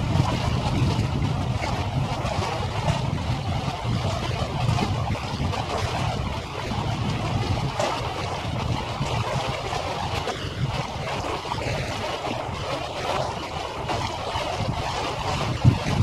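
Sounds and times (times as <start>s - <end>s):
low rumble: 0.0s - 12.6s
water rushing: 0.0s - 16.0s
wind on microphone: 0.0s - 16.0s.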